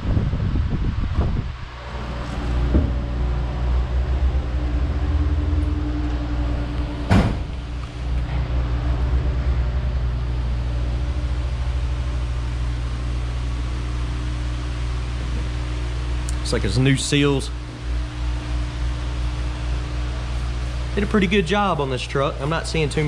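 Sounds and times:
low engine-like hum: 0:00.0 - 0:23.0
sharp knock: 0:07.1 - 0:07.5.

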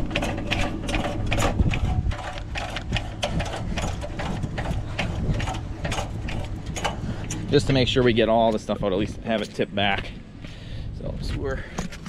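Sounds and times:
trailer jack gears clicking: 0:00.0 - 0:09.6.

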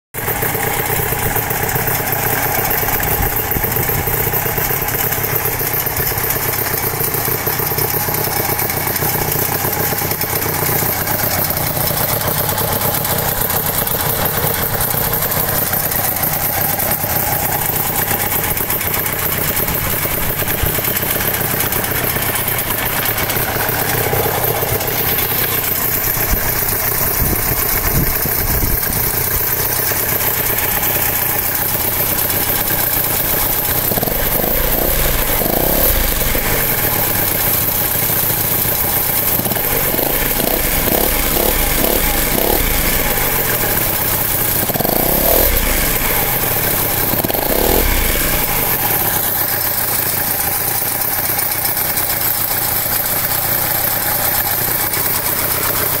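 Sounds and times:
paramotor engines revving: 0:15.9 - 0:27.5, 0:30.0 - 0:49.2.

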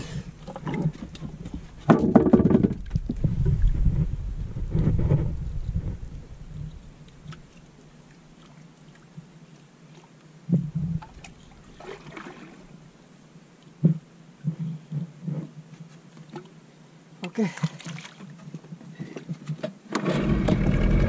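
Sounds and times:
soft knocks in a boat: 0:00.5 - 0:06.0, 0:13.8 - 0:15.5.

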